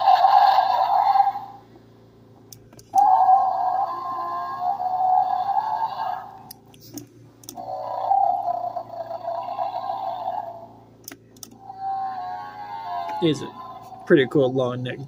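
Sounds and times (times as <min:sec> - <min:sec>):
electronic dinosaur calls: 0:00.0 - 0:01.6, 0:02.9 - 0:06.5, 0:07.5 - 0:10.8, 0:11.6 - 0:14.5.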